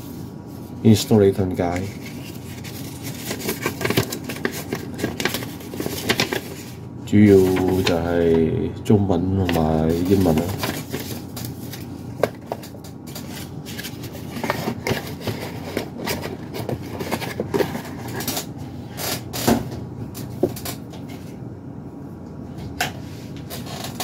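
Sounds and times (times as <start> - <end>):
paper rustling: 1.6 - 8.1, 9.4 - 18.4.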